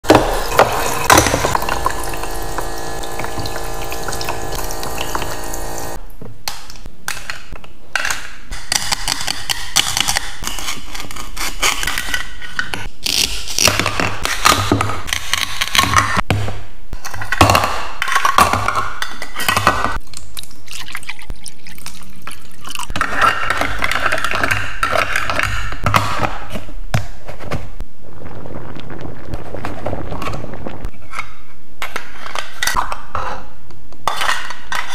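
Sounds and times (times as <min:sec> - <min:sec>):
toy pump humming with water splashing: 0:00.1 - 0:06.0.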